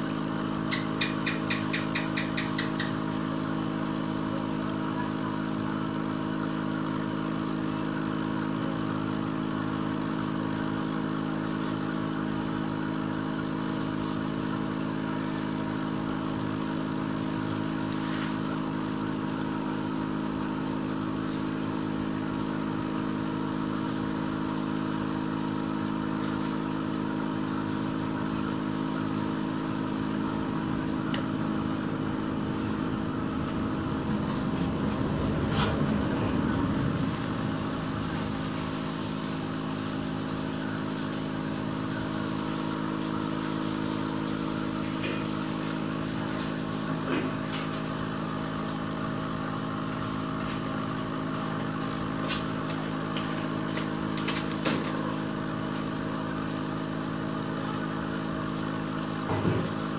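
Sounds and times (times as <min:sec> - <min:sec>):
air pump humming: 0:00.0 - 0:59.9.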